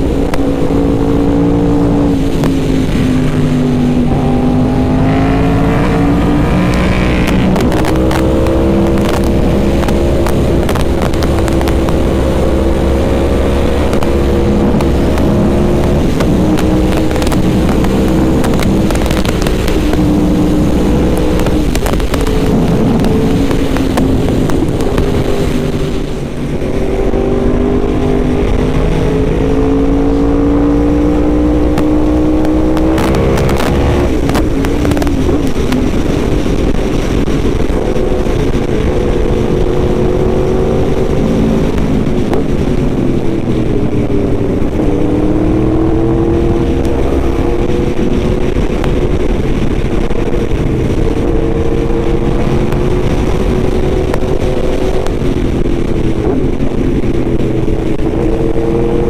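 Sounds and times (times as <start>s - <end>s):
motorcycle engine running: 0.0s - 59.0s
wind noise: 0.0s - 59.0s.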